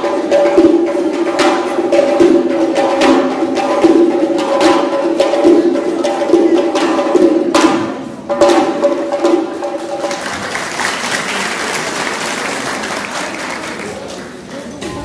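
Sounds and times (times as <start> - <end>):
music with percussion beat: 0.0 - 10.9
crowd applauding: 9.8 - 15.0.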